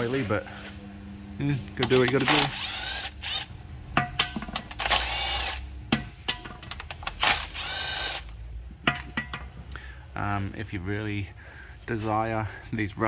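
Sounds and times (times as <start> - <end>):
power tool motor whine: 2.2 - 3.5, 4.8 - 5.6, 7.2 - 8.3.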